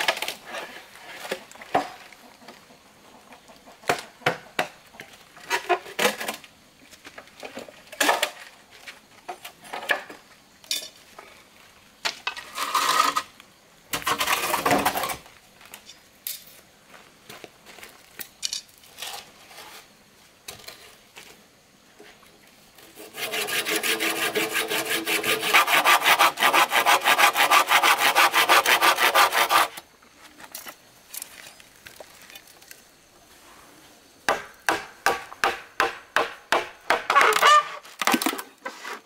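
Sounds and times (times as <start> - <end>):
blade scraping bamboo: 12.4 - 13.3, 22.8 - 29.8.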